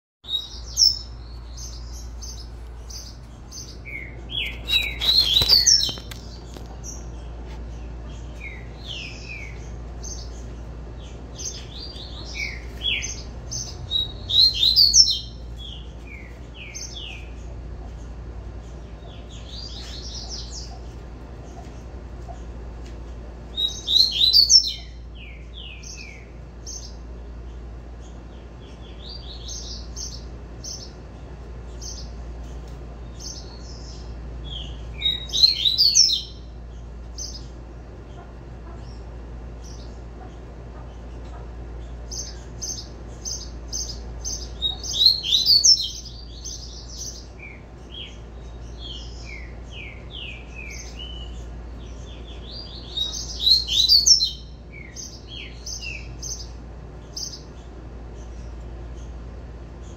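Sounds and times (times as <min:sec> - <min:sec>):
steady low hum: 0:00.2 - 0:59.9
bird singing whistled notes: 0:03.6 - 0:06.1, 0:11.8 - 0:17.0, 0:23.6 - 0:26.2, 0:34.5 - 0:36.4, 0:43.9 - 0:48.2, 0:52.2 - 0:56.1.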